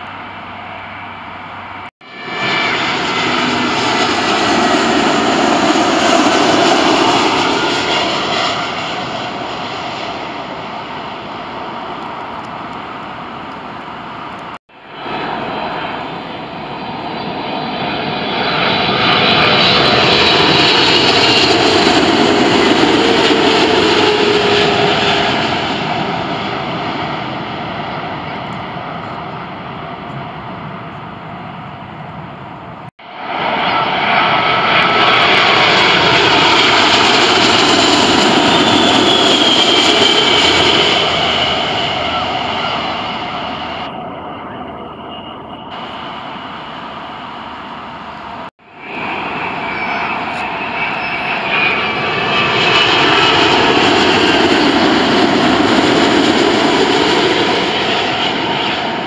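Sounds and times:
falling engine whine: 0.0s - 59.0s
jet airliner passing overhead: 0.0s - 59.0s.

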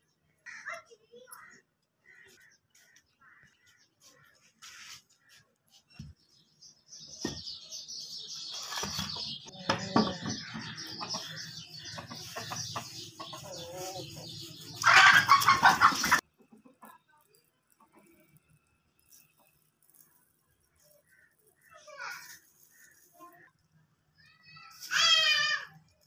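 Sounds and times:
chickens clucking: 8.8s - 18.4s.

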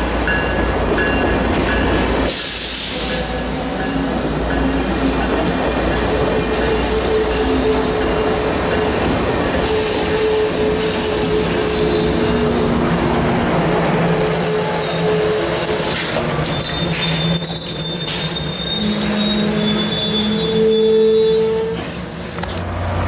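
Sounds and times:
train wheels squealing on rails: 0.3s - 12.6s, 14.2s - 22.6s
higher wheel squeal: 14.2s - 22.6s.

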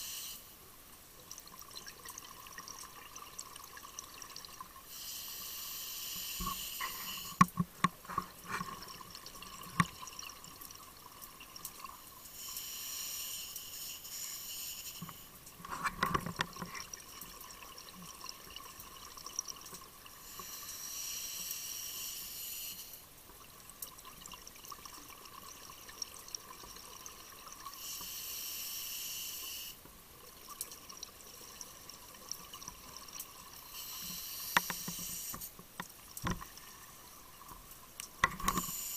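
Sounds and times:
regulator inhalation hiss: 0.0s - 0.5s, 4.9s - 7.4s, 12.3s - 15.3s, 20.2s - 23.0s, 27.8s - 29.8s, 33.6s - 35.6s, 38.4s - 38.9s
faint steady tone: 0.0s - 38.9s
exhaled bubbles bubbling and clicking: 1.2s - 4.9s, 6.4s - 12.1s, 15.0s - 20.6s, 23.2s - 27.8s, 34.5s - 38.7s.

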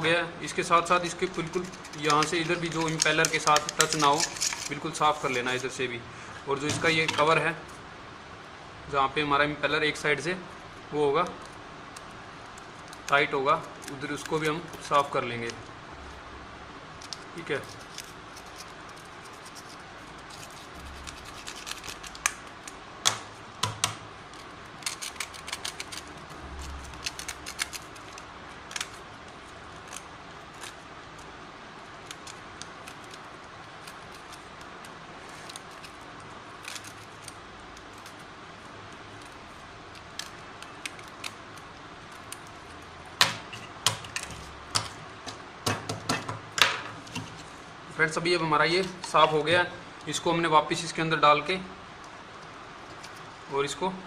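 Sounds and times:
screwdriver scraping plastic: 1.2s - 5.7s, 17.0s - 22.3s.

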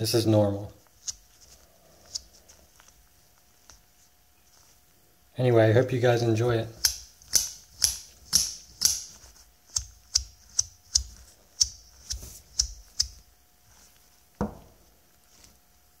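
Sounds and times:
dull knock: 14.4s - 14.7s.

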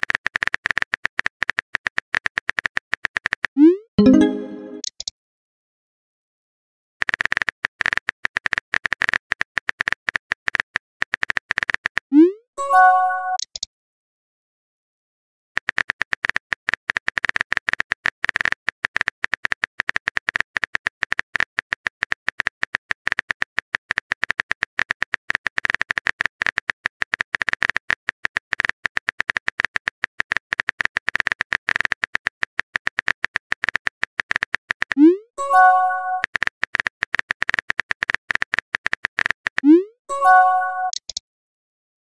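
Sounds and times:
phone keyboard typing clicks: 35.6s - 39.7s, 40.3s - 41.2s.

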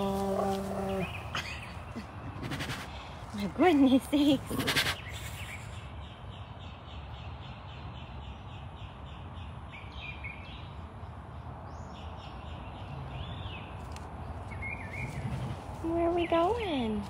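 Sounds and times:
birds chirping: 0.0s - 17.0s
steady low rumble: 10.4s - 17.0s.

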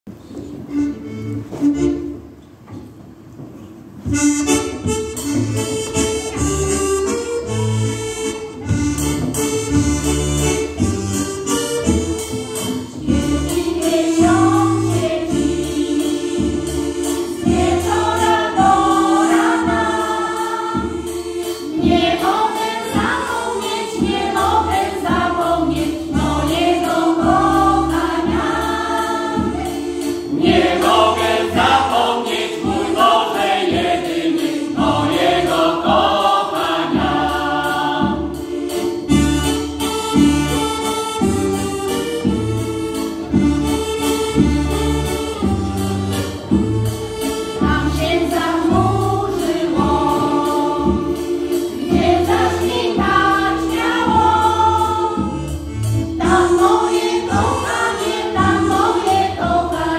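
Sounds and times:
accordion: 0.3s - 2.4s, 4.0s - 59.9s
steady drum beat: 8.6s - 59.9s
choir singing folk song: 12.9s - 39.5s, 47.2s - 59.9s.

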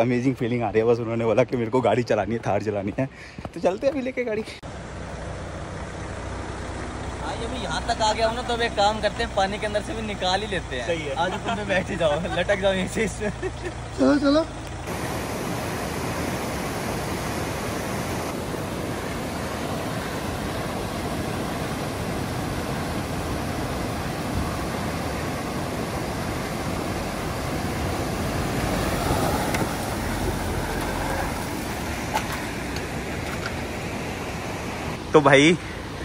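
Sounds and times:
vehicle engine running: 4.6s - 36.0s
rushing river water: 14.8s - 36.0s.

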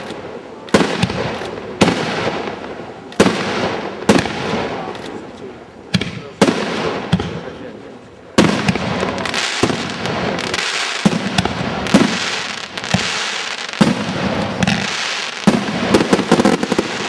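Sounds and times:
sharp firework bangs: 0.0s - 5.2s, 5.9s - 7.6s, 8.3s - 17.0s
fireworks launching and bursting: 0.0s - 17.0s.

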